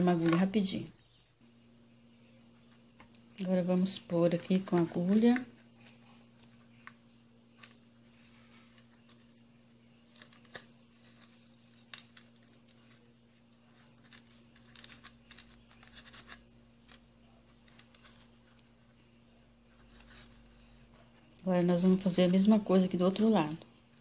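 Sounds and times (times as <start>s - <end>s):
steady low hum: 0.0s - 24.0s
fingers clicking and scratching plastic: 4.3s - 7.0s, 13.7s - 18.7s.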